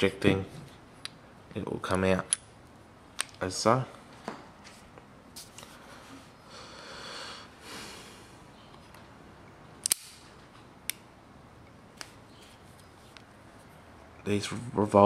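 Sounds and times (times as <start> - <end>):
person sniffing: 6.5 - 8.4
revolver cylinder latching: 9.8 - 10.3.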